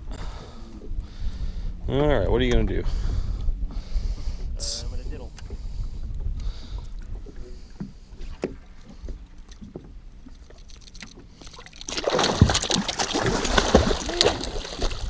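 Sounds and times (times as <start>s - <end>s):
fish splashing in water: 9.5s - 15.0s.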